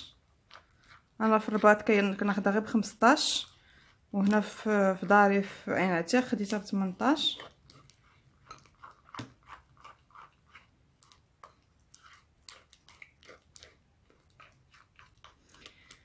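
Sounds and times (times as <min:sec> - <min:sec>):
slime stirred in a bowl: 0:00.0 - 0:16.0.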